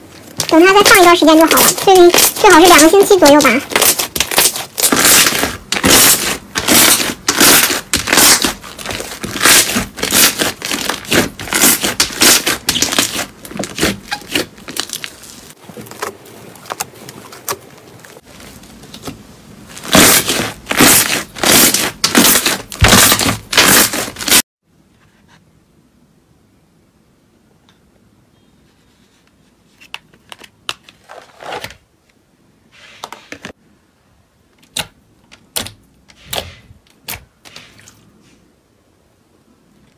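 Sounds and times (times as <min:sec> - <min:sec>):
slime squished by hand crackling: 0:00.4 - 0:15.6.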